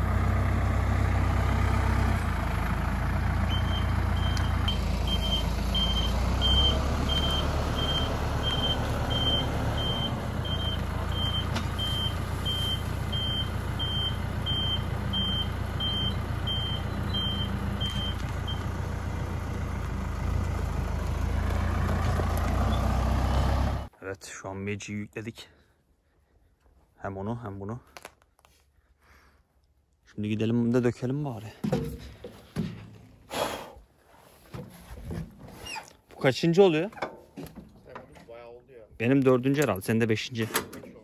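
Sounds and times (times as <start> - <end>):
diesel engine rumbling: 0.0 - 23.9
reversing alarm beeping: 3.5 - 18.6.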